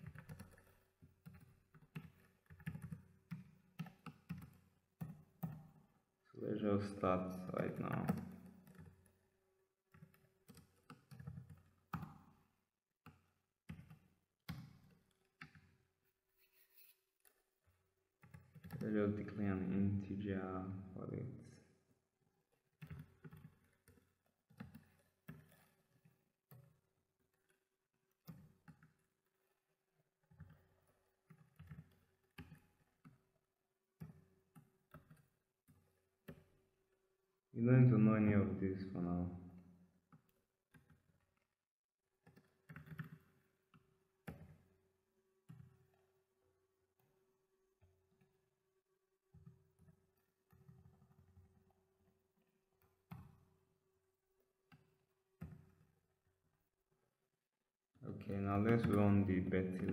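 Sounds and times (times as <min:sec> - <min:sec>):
computer keyboard typing: 0:00.0 - 0:05.6, 0:09.9 - 0:12.0, 0:18.2 - 0:18.8, 0:22.8 - 0:25.8, 0:30.2 - 0:33.0, 0:42.3 - 0:43.3
keystrokes on computer keyboard: 0:00.0 - 0:05.9, 0:07.5 - 0:09.3, 0:09.9 - 0:15.8, 0:16.6 - 0:19.4, 0:22.6 - 0:33.2, 0:34.0 - 0:36.6, 0:42.2 - 0:44.7, 0:49.3 - 0:51.7.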